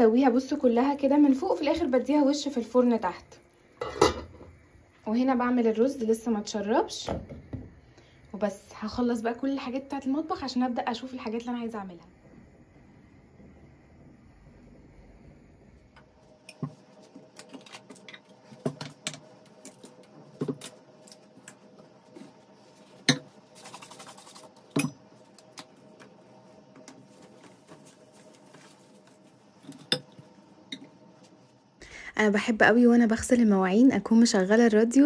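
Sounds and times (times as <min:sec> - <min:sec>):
faint steady hum: 0:00.0 - 0:35.0
glass and bottles clinking: 0:24.7 - 0:25.0.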